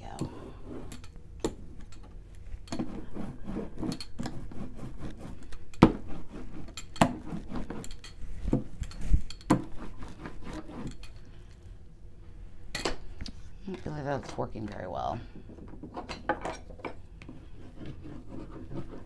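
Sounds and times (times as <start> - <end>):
rubbing on paper: 2.8 - 7.8, 9.6 - 10.9, 17.5 - 19.0.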